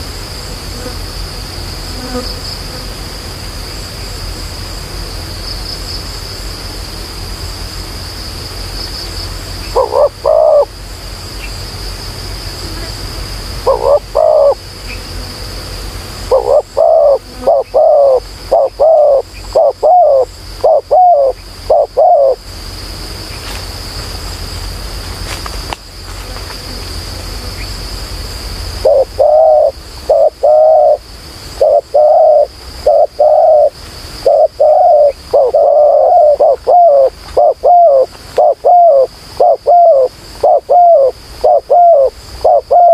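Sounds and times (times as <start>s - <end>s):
high-pitched insect drone: 0.0s - 42.9s
doves cooing: 9.7s - 10.7s, 13.6s - 14.6s, 16.2s - 22.4s, 28.8s - 42.9s.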